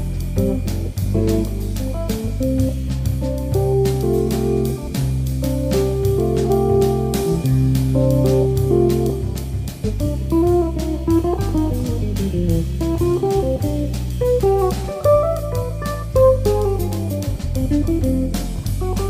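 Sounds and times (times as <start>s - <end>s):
bass line: 0.0s - 19.0s
plucked guitar melody: 0.0s - 19.0s
steady beat: 0.0s - 19.0s.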